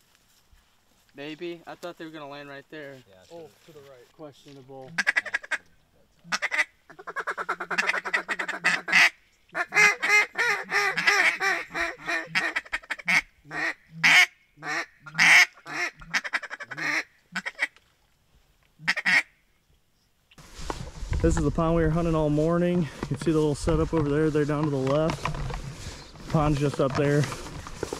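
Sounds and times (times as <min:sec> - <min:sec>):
duck quacking: 0:04.9 - 0:05.6, 0:06.2 - 0:17.7, 0:18.8 - 0:19.3.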